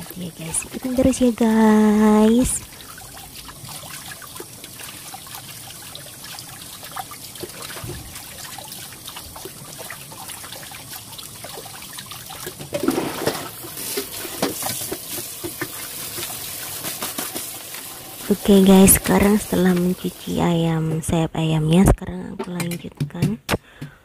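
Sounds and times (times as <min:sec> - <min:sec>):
tap water splashing into pot: 0:11.2 - 0:18.0.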